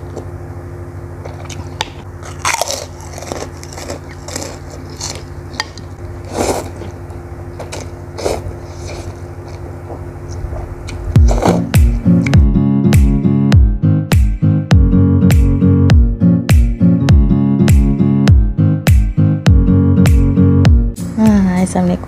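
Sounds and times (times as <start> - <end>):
steady low hum: 0.0 - 22.0
chewing: 1.2 - 7.0
slurping noodles: 6.2 - 7.0, 7.7 - 9.6
guitar music: 10.9 - 22.0.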